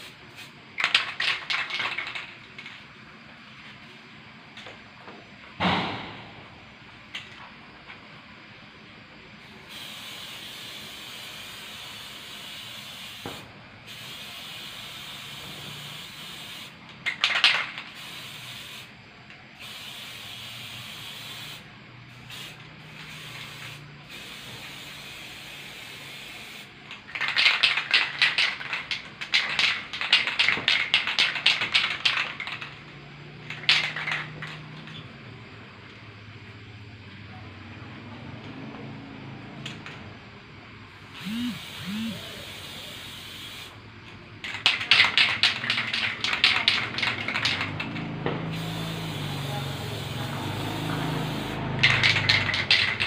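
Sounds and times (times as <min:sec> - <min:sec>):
spray can hissing: 0:00.0 - 0:02.2, 0:09.7 - 0:18.9, 0:19.6 - 0:32.8, 0:33.4 - 0:34.6, 0:41.1 - 0:43.8, 0:44.4 - 0:53.0.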